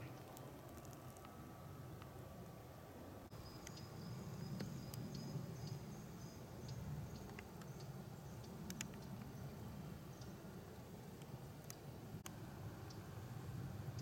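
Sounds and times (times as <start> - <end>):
faint insect chirping: 3.3 - 14.0
sharp light clicks: 7.1 - 9.3.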